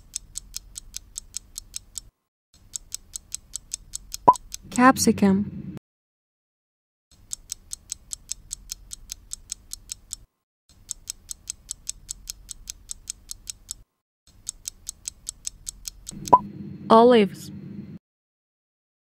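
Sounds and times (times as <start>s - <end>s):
clock ticking: 0.0s - 4.6s, 7.2s - 16.4s.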